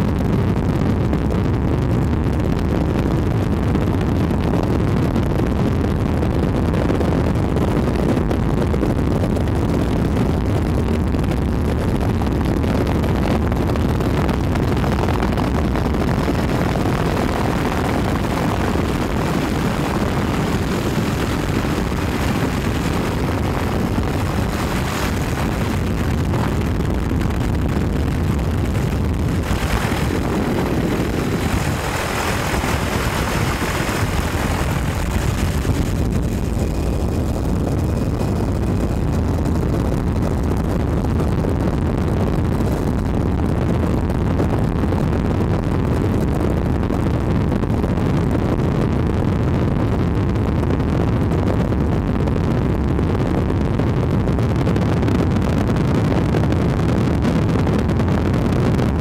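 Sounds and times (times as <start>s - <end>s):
rushing air: 14.7s - 41.3s
aircraft engine drone: 14.9s - 40.0s.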